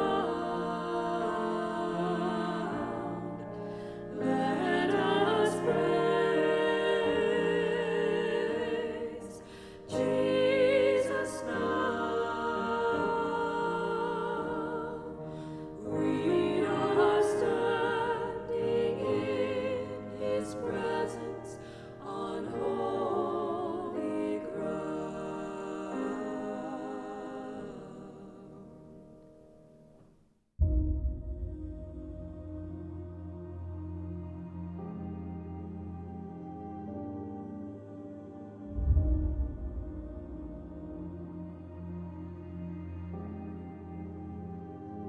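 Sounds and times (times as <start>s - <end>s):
women singing worship song: 0.0s - 28.6s
piano accompaniment: 0.0s - 30.0s, 30.6s - 45.0s.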